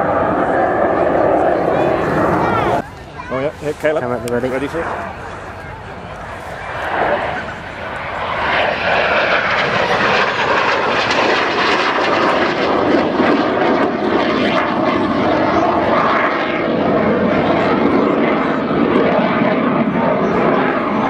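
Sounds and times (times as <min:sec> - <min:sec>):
propeller aircraft engine: 0:00.0 - 0:21.0.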